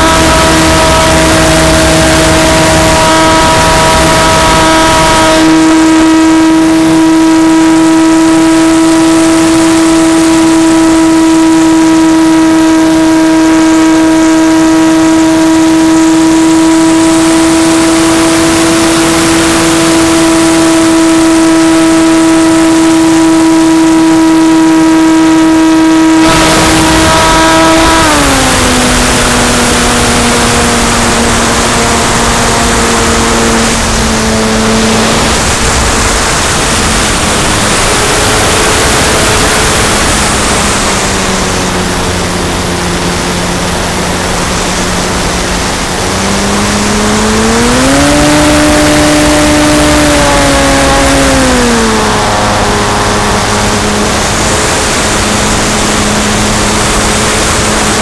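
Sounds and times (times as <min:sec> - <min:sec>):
model airplane motor hum: 0:00.0 - 0:58.0
wind rushing: 0:25.7 - 0:58.0.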